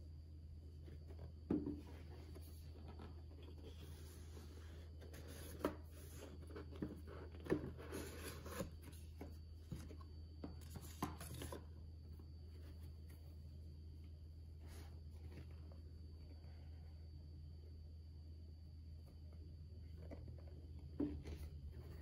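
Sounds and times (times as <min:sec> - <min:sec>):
steady low hum: 0:00.0 - 0:22.0
cardboard sliding and rubbing: 0:01.0 - 0:10.0.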